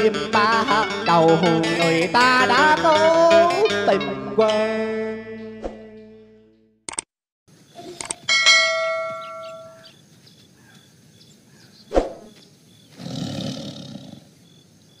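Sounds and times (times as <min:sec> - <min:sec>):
bright ringing bell chime: 0:07.8 - 0:09.9
tiger roar: 0:12.9 - 0:14.4.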